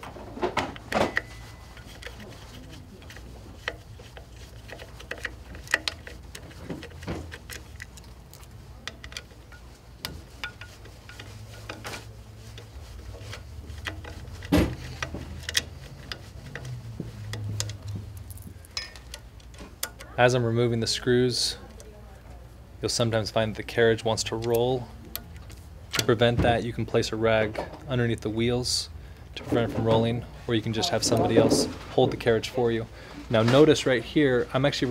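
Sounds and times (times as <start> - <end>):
low steady hum: 0.0 - 34.5
screwdriver clicks and scrapes: 0.7 - 20.3, 24.2 - 26.3.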